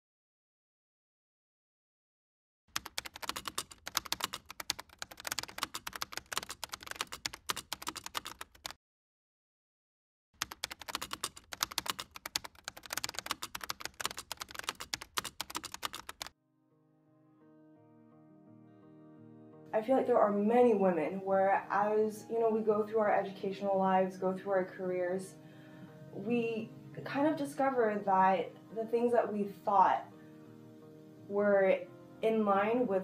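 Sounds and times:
rapid keyboard typing: 0:02.7 - 0:08.8, 0:10.4 - 0:16.4
soft music: 0:16.4 - 0:33.0.

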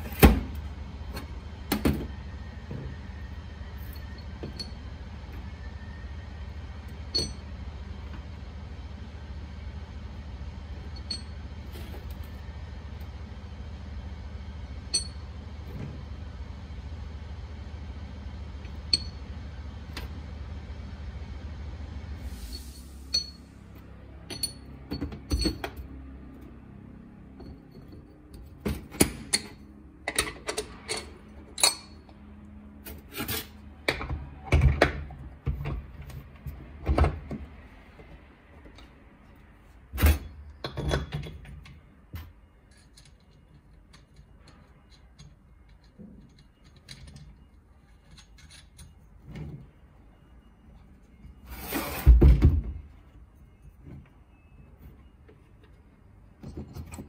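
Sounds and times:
metal parts clicking and clinking: 0:24.3 - 0:25.9, 0:27.4 - 0:32.1, 0:42.2 - 0:49.2.

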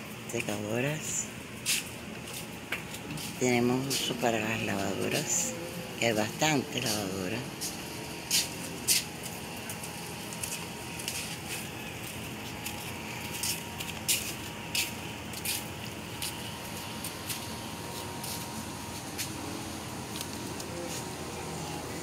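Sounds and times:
footsteps on concrete: 0:01.6 - 0:05.3, 0:06.8 - 0:19.5.

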